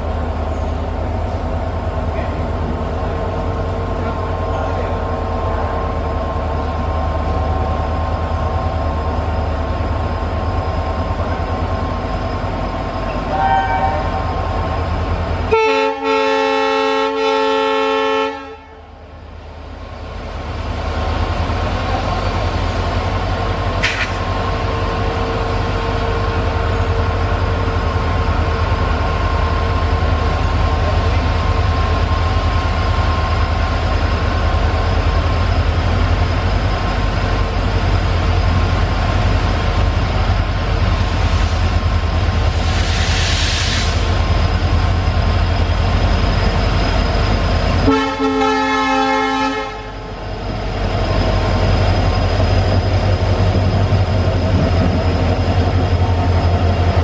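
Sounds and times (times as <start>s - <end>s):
locomotive engine rumble: 0.0s - 17.2s, 18.5s - 57.0s
train horn: 13.3s - 14.2s, 15.5s - 18.9s, 47.8s - 50.0s.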